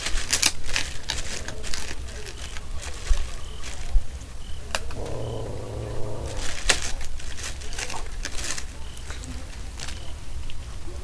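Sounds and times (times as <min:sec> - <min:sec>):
steady low hum: 0:04.9 - 0:06.9.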